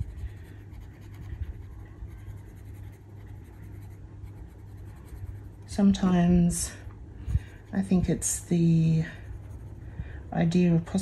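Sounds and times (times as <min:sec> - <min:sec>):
pencil scratching on paper: 0:00.0 - 0:05.6, 0:09.1 - 0:09.8
steady low hum: 0:00.0 - 0:11.0.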